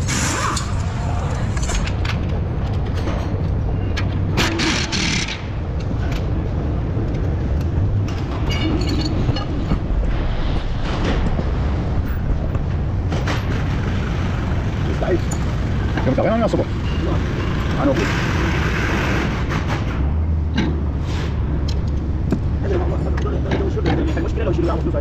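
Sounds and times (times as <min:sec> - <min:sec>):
low workshop rumble: 0:00.0 - 0:25.0
metallic clinks and taps: 0:08.1 - 0:09.5.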